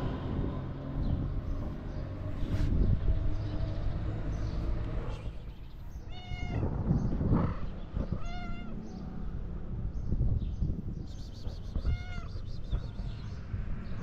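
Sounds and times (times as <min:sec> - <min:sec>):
cat meowing: 0:06.0 - 0:06.8, 0:08.1 - 0:08.8, 0:11.7 - 0:12.7.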